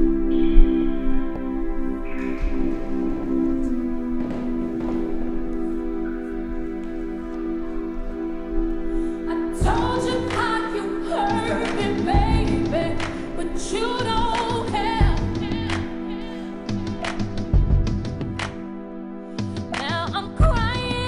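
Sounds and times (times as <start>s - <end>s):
held chords: 0.0s - 19.4s
person singing: 9.2s - 17.0s.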